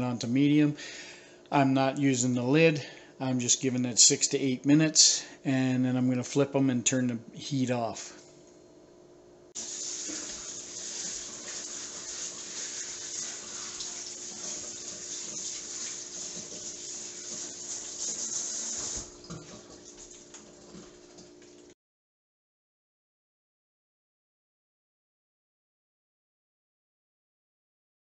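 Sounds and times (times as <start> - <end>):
faint steady hum: 0.0 - 21.7
faucet running into steel sink: 9.6 - 21.7.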